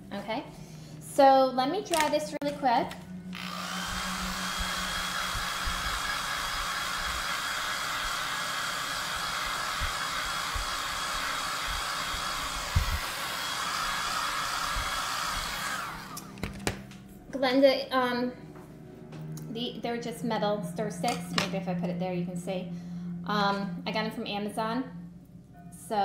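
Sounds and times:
hair dryer blowing: 0:02.8 - 0:16.6.

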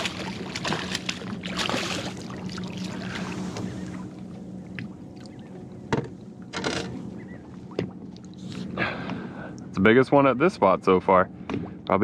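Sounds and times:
fish splashing at water surface: 0:00.0 - 0:03.4.

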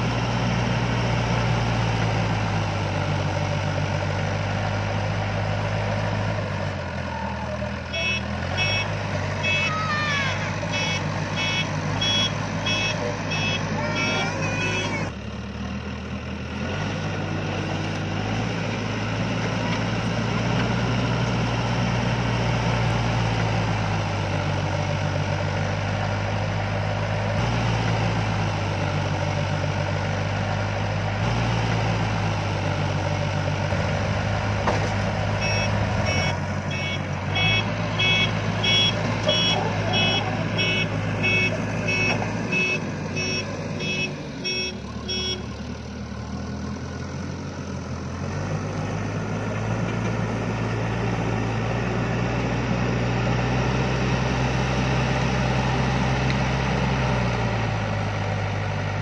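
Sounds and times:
diesel engine under load: 0:00.0 - 0:59.0
reverse alarm beeping: 0:08.0 - 0:09.7, 0:10.7 - 0:15.0, 0:35.4 - 0:45.4.

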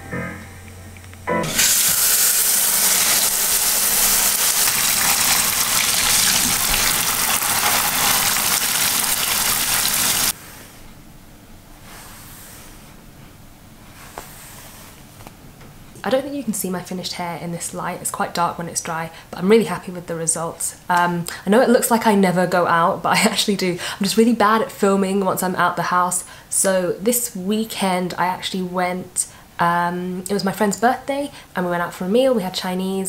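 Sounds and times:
water running into a basin: 0:01.4 - 0:10.4.

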